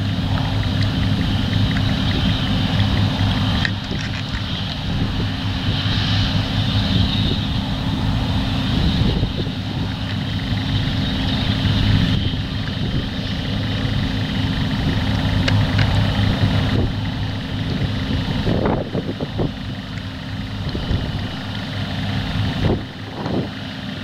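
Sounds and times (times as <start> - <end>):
combine harvester engine drone: 0.0 - 24.0.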